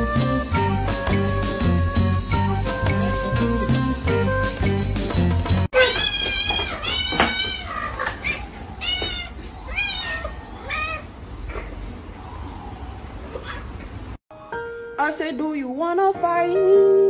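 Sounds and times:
young cat meowing: 5.8 - 11.1.

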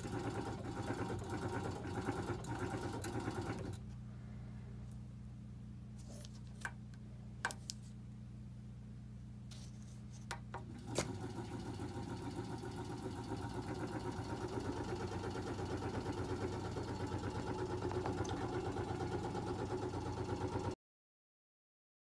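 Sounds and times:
vortexer motor rattling: 0.0 - 3.8, 10.7 - 20.7.

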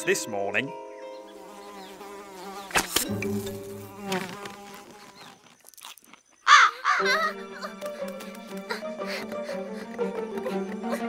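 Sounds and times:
background music: 0.0 - 4.2, 6.6 - 11.0
fly buzzing: 1.1 - 11.0
sharp snap: 2.7 - 3.2.

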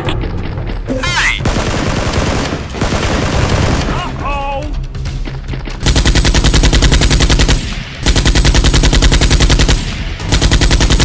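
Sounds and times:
rapid automatic gunfire: 1.4 - 4.1, 5.8 - 11.0.

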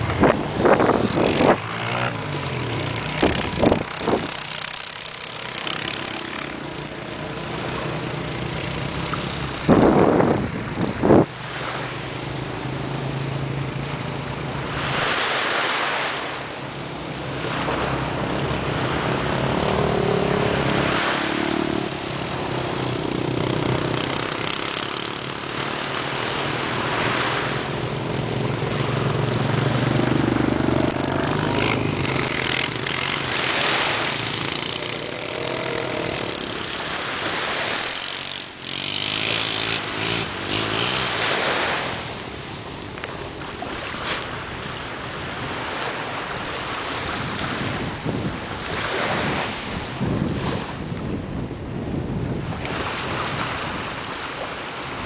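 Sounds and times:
wind buffeting microphone: 0.0 - 5.7, 6.4 - 15.2, 42.8 - 55.0
distant motorboat engine hum: 0.0 - 55.0
surf washing on shore: 0.0 - 55.0.

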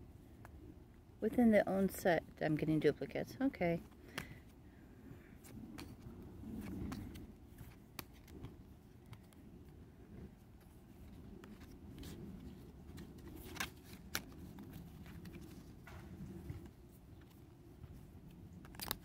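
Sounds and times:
photocards being shuffled: 5.4 - 19.0
card edges clicking: 18.6 - 19.0.

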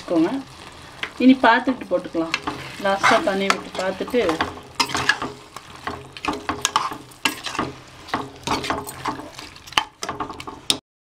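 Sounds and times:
chicken sizzling: 0.0 - 10.8
spatula scraping a pot: 2.3 - 10.8.

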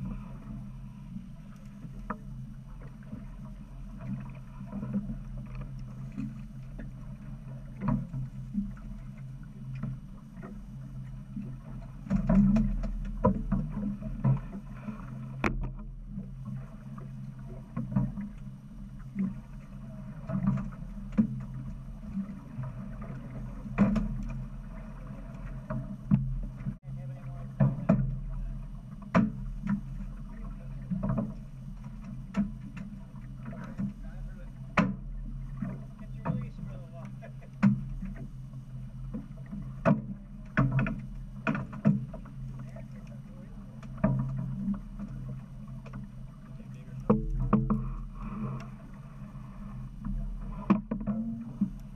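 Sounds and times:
boat engine humming: 0.0 - 51.9.

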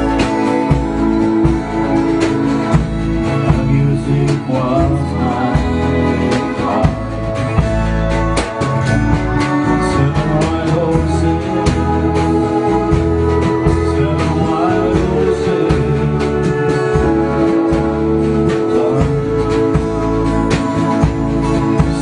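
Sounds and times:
acoustic guitar strumming: 0.0 - 22.0
man singing into microphone: 3.2 - 7.4, 9.6 - 22.0.

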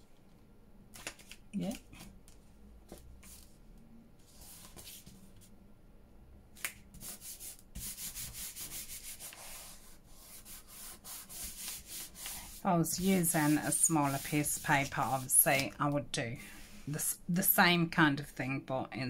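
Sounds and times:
paper rubbed onto card: 6.9 - 15.8.

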